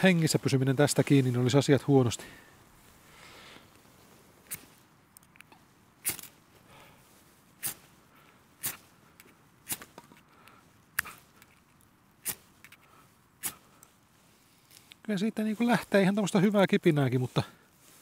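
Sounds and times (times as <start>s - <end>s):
flint and steel scraping strikes: 4.4s - 6.6s, 7.6s - 8.0s, 8.6s - 15.0s.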